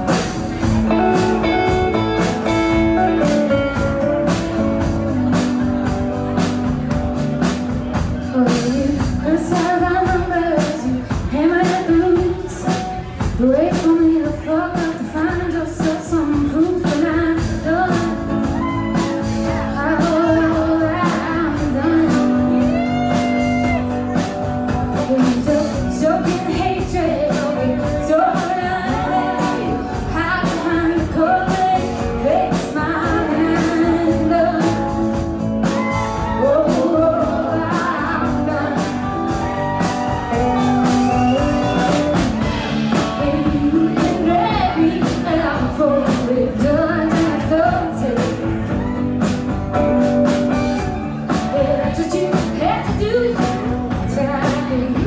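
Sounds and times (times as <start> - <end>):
woman singing: 8.2 - 24.2, 24.9 - 41.6, 42.2 - 49.5, 51.3 - 55.0.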